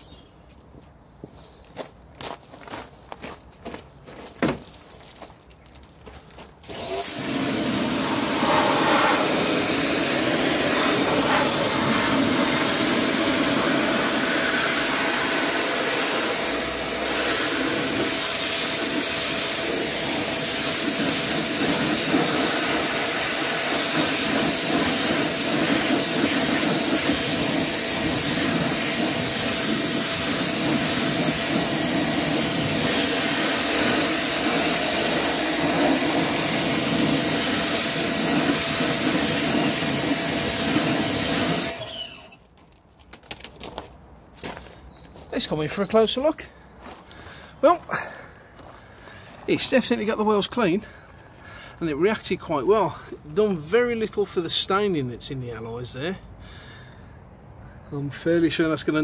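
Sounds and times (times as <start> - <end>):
pressure washer spraying wheel: 6.6 - 42.4.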